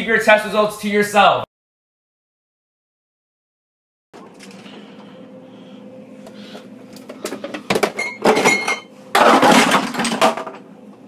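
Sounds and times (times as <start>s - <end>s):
low steady hum: 4.2s - 11.0s.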